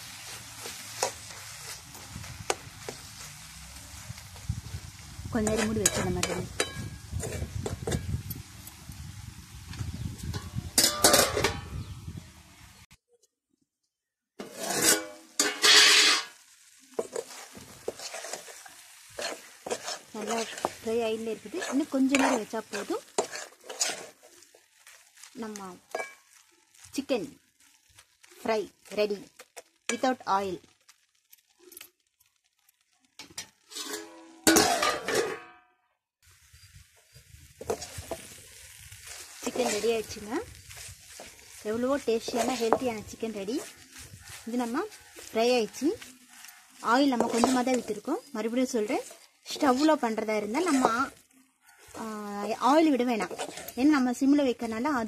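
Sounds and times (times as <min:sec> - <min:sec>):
chicken sizzling: 0:00.0 - 0:12.9, 0:14.4 - 0:35.4, 0:36.2 - 0:55.0
metal lid and spatula clattering: 0:05.4 - 0:08.0, 0:10.3 - 0:11.9, 0:14.4 - 0:16.4, 0:19.2 - 0:20.8, 0:21.6 - 0:24.4, 0:25.9 - 0:26.3, 0:33.2 - 0:35.6, 0:47.1 - 0:48.0, 0:48.8 - 0:51.1
metal lid clanking on pan: 0:10.4 - 0:11.7, 0:14.7 - 0:16.4, 0:33.7 - 0:35.6.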